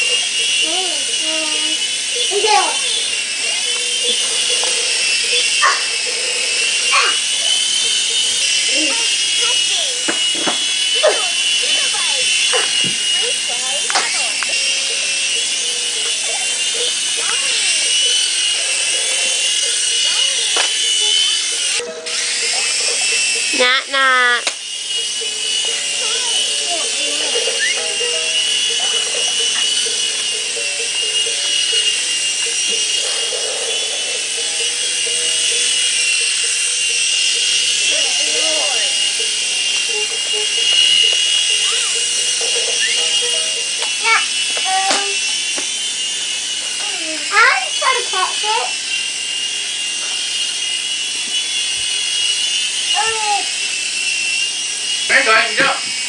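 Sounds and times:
child calling: 0.0 - 4.6, 5.2 - 7.8, 8.6 - 10.2, 10.9 - 18.0, 25.7 - 30.2, 37.9 - 39.0, 39.7 - 45.2, 46.8 - 48.7, 52.9 - 53.5
toy helicopter motor whine: 0.0 - 56.0.

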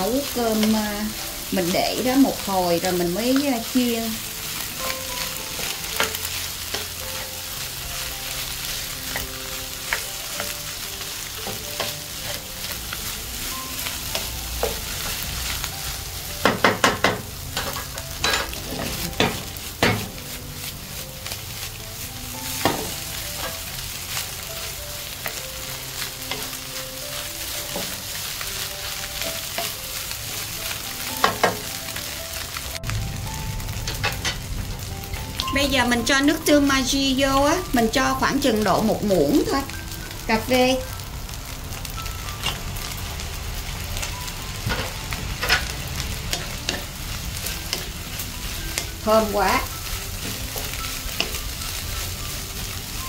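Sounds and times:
rice sizzling in a pan: 0.0 - 53.0
spatula stirring rice: 0.2 - 31.4
spatula knocking on pan: 16.4 - 20.2.

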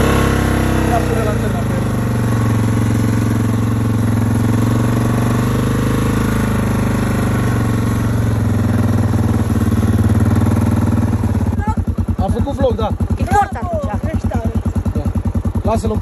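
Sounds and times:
engine running at low revs: 0.0 - 16.0.

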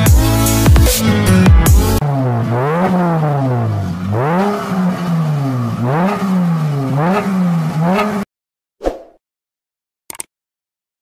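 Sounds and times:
car engine revving: 0.0 - 8.3.

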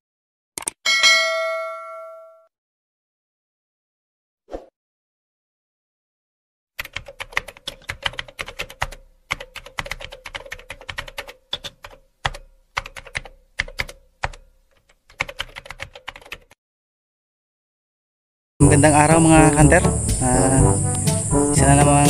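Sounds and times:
computer keyboard typing: 6.8 - 16.6.

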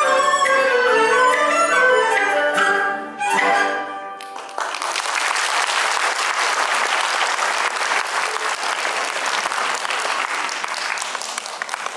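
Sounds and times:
audience clapping: 4.2 - 11.9.

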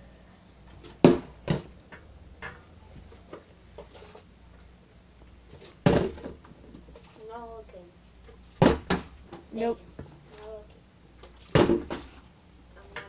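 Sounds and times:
plastic bottle landing knocks: 0.8 - 1.7, 5.8 - 6.4, 8.6 - 9.1, 11.5 - 12.1.

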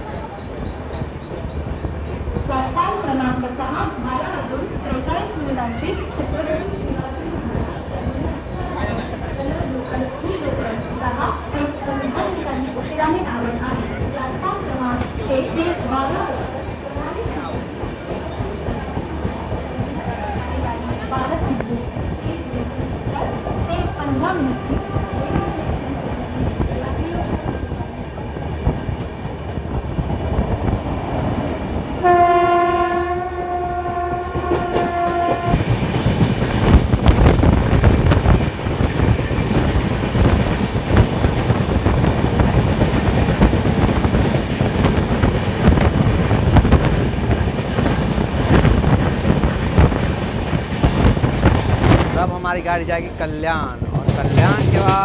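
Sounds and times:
train wheels clattering on rails: 0.0 - 33.0, 33.8 - 52.3, 53.0 - 55.0
train horn blast: 24.3 - 25.8, 32.0 - 35.7.

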